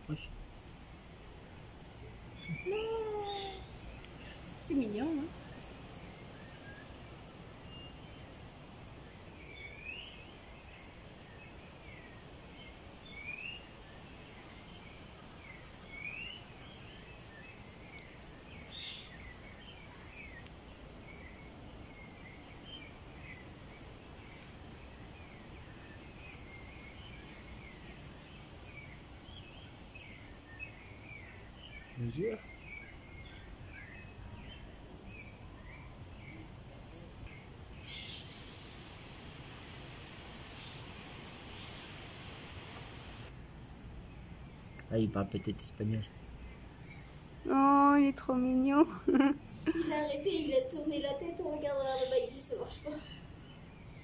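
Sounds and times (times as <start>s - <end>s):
rising chirping calls: 0.0s - 8.4s, 37.2s - 54.0s
low background noise: 0.0s - 54.0s.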